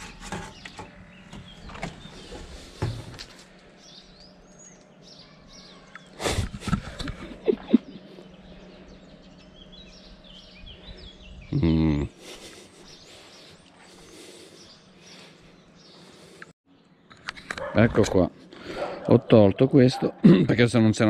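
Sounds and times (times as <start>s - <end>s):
steady low hum: 0.0s - 16.5s
small birds chirping: 0.0s - 20.2s.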